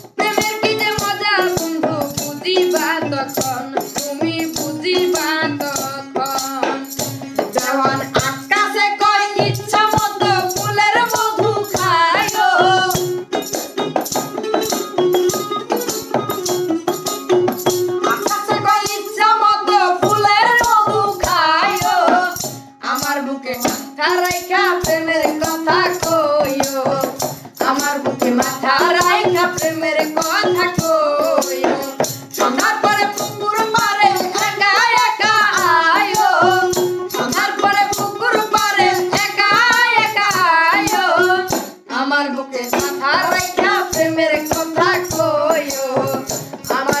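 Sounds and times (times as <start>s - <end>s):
woman singing: 0.0s - 16.6s, 17.5s - 47.0s
backing music with percussion beat: 0.0s - 47.0s
boy singing: 0.0s - 47.0s.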